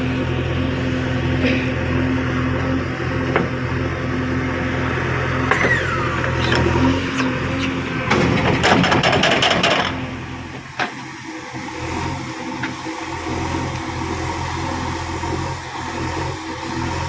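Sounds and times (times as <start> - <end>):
diesel engine running: 0.0 - 17.0
soil clods dropping into trailer: 8.1 - 10.0.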